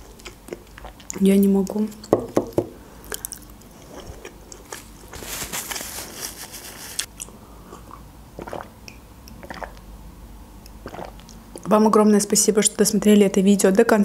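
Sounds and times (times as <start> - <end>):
chewing with wet clicks: 0.0 - 2.1, 3.0 - 4.8, 7.0 - 9.8, 10.6 - 11.7
sipping and swallowing from a mug: 7.1 - 9.9, 10.7 - 11.7.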